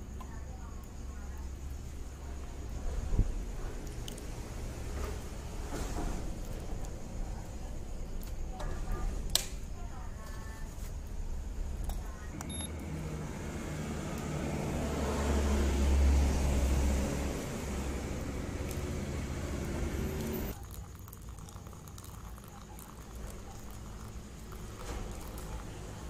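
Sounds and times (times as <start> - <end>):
steady traffic background: 0.0 - 26.0
vehicle passing with road noise: 2.0 - 7.2, 12.4 - 20.6.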